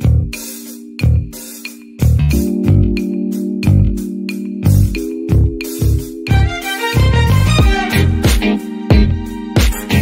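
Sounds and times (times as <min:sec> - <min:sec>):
low thumping beat: 0:00.0 - 0:10.0
organ-like keyboard chords: 0:00.0 - 0:10.0.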